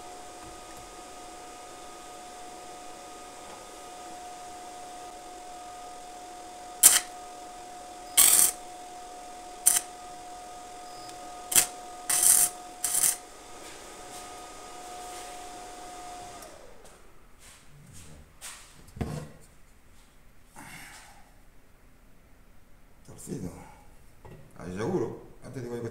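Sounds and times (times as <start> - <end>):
thin steady whine: 0.0 - 17.3
arc welder crackling: 6.7 - 10.2, 11.1 - 13.3.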